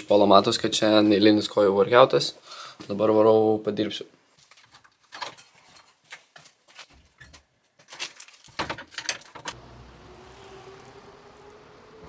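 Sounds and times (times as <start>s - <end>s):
steady street hum: 9.5s - 12.0s.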